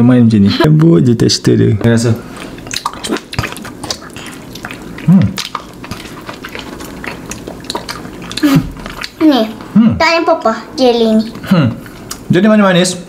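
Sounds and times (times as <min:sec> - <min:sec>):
chewing mouth sounds: 0:02.4 - 0:09.8
person humming: 0:09.8 - 0:10.0.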